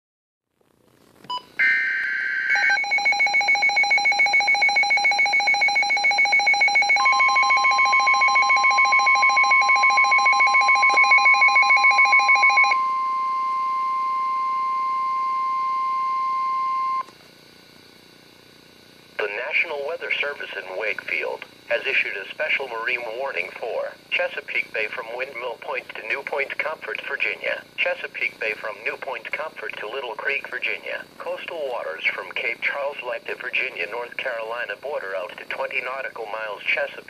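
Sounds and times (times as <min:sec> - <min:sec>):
electronic alarm beeping: 0:01.3 - 0:17.1
steady warning tone: 0:01.6 - 0:17.1.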